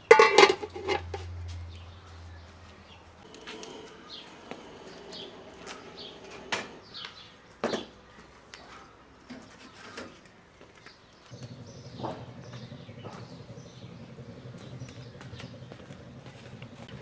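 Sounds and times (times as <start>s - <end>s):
birds chirping: 1.6s - 17.0s
sharp metallic knocks: 11.4s - 16.1s.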